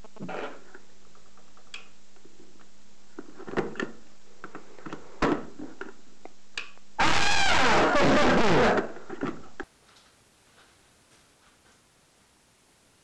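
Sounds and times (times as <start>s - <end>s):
steady low hum: 0.0s - 7.0s.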